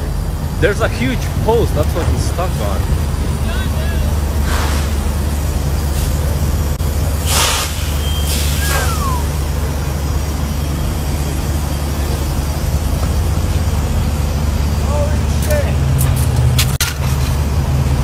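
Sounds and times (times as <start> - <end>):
diesel engine rumbling: 0.0 - 18.0
air hiss bursts: 4.4 - 5.1, 7.2 - 9.4.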